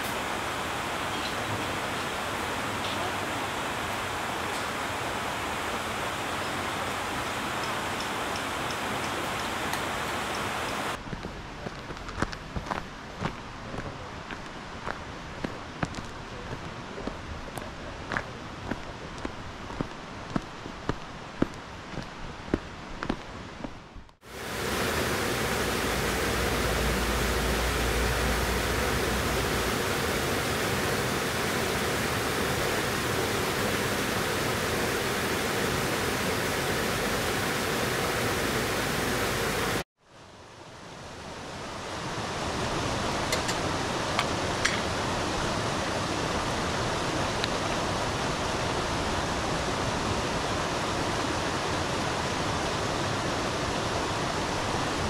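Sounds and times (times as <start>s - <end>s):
mountain river rushing: 0.0s - 11.0s, 13.1s - 55.0s.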